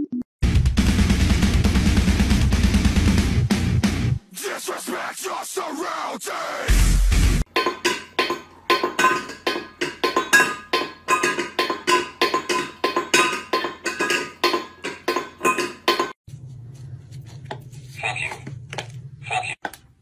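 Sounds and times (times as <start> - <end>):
metal bowl clinking on tiles: 7.5 - 16.2.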